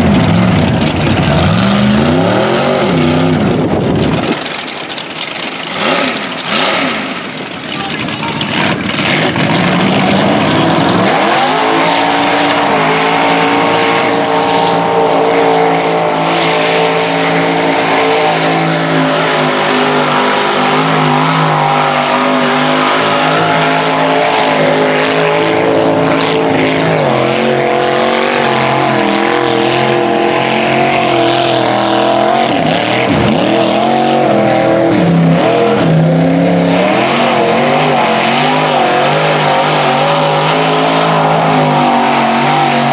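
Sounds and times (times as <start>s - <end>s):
truck engine revving: 0.0s - 42.9s.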